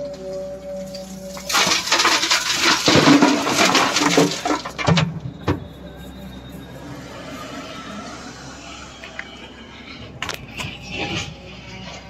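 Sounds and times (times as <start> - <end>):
rocks crashing into steel trailer: 1.3 - 5.7.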